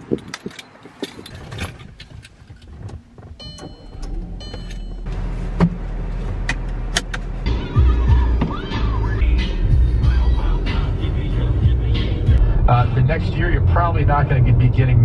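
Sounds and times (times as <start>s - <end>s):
clicks and rustles in car: 0.0s - 7.3s
car engine starting and idling: 1.2s - 15.0s
dashboard warning chimes: 3.3s - 5.2s
seatbelt buckle click: 6.4s - 7.2s.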